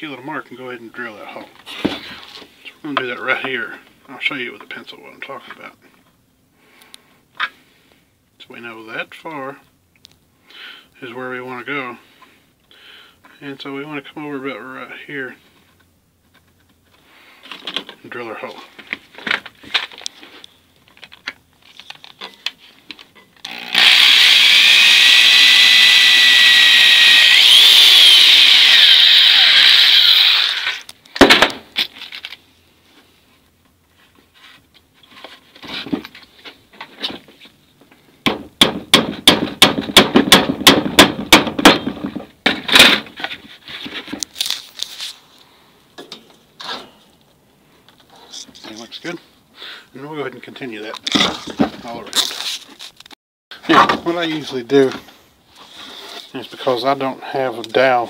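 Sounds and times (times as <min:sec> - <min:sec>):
power drill whining: 0:23.4 - 0:30.9.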